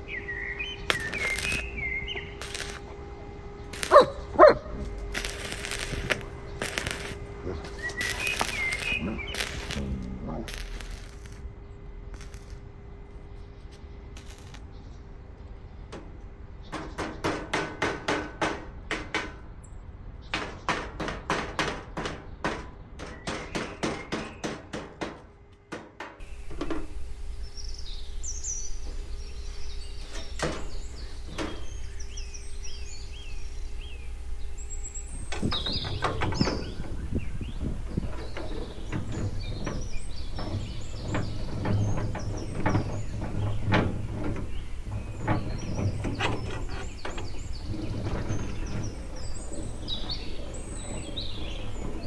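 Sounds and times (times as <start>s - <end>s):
small birds chirping: 0.0s - 17.3s, 26.2s - 52.0s
knocks: 20.3s - 26.9s, 35.3s - 52.0s.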